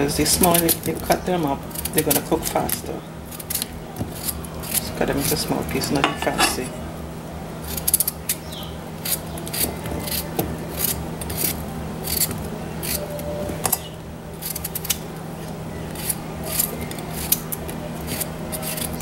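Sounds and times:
knife slicing potatoes: 0.1 - 6.7, 9.0 - 13.0, 14.4 - 15.0, 15.9 - 19.0.

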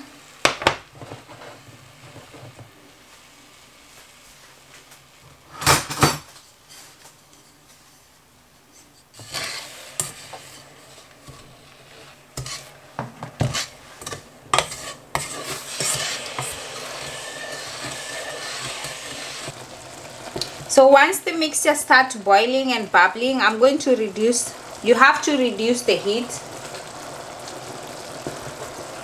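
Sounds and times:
sizzling hiss: 0.0 - 5.7, 9.1 - 29.0
wooden spatula scraping metal pot: 8.8 - 19.6.

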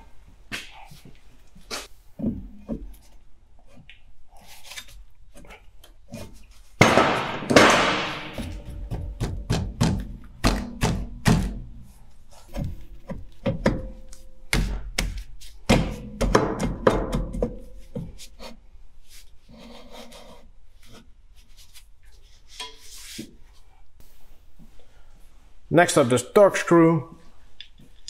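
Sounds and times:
metal drum knocking and clunking: 6.8 - 11.8, 15.7 - 17.7.

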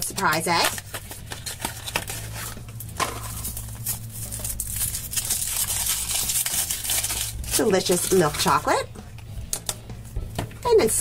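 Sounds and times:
thin foil crinkling: 0.5 - 8.7.

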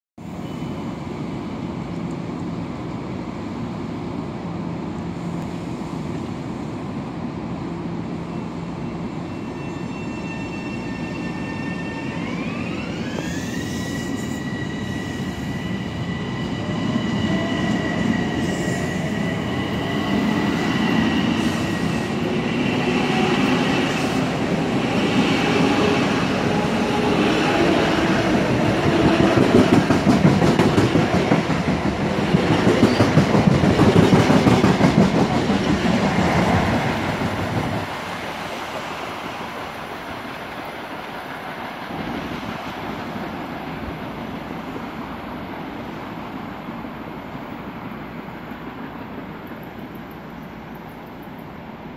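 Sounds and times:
wheels rumbling on rail: 0.2 - 51.9
electric train propulsion whine: 7.5 - 34.0.

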